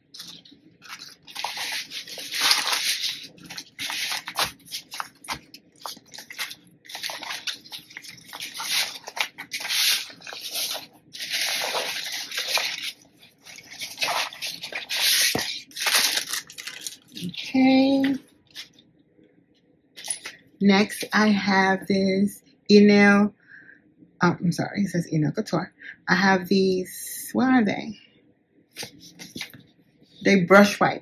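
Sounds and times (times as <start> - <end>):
fabric rustling on tabletop: 0.1 - 18.8.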